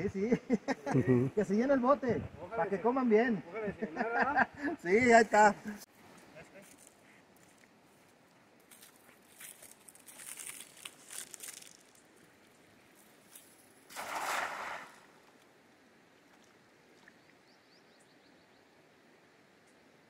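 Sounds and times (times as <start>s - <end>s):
net splashing into river: 13.8s - 15.4s.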